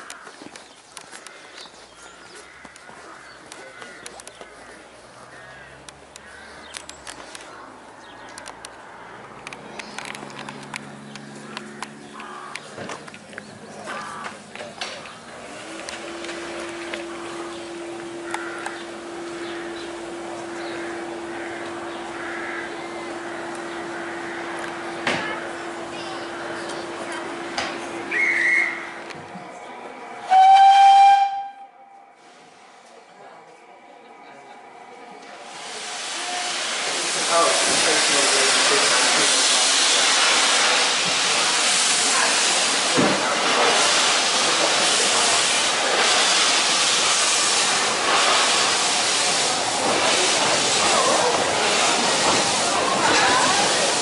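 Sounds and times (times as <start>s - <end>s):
birds calling: 0.0s - 15.3s, 17.0s - 29.0s
short warbling whistle: 28.1s - 28.9s
steam locomotive whistle blast: 28.1s - 28.9s, 30.2s - 31.9s, 36.0s - 37.0s
steam hissing: 35.3s - 54.0s.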